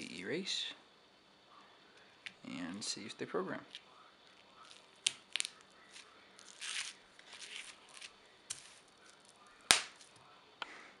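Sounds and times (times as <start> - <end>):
bubble wrap crinkling: 4.2 - 10.2
bubble wrap snap: 4.6 - 10.2.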